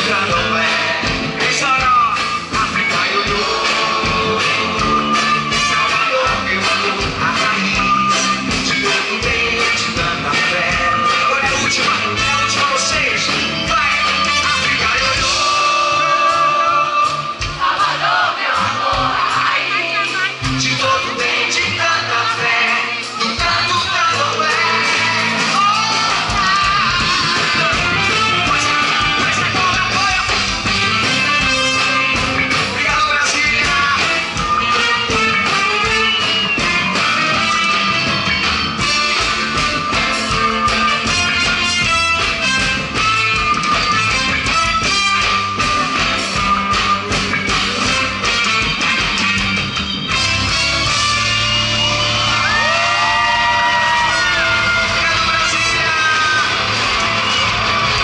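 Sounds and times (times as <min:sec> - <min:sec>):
man singing: 0:00.0 - 0:17.5, 0:19.2 - 0:38.2, 0:52.6 - 0:56.7
drums: 0:00.0 - 0:58.0
guitar: 0:00.0 - 0:58.0
live band music: 0:00.0 - 0:58.0.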